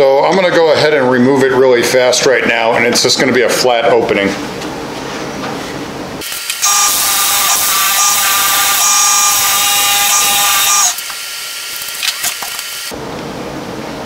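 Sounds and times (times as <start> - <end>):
wood lathe turning tool cutting: 6.5 - 11.0.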